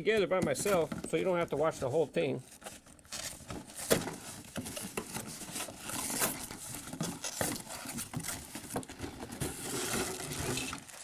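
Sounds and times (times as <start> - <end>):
paper crinkling: 2.4 - 11.0
cardboard tearing: 2.5 - 11.0.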